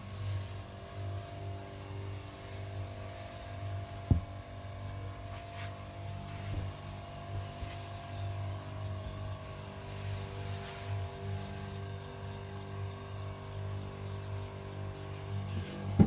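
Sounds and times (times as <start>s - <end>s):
low steady hum: 0.0s - 16.0s
plastic tank knocks: 4.1s - 4.3s.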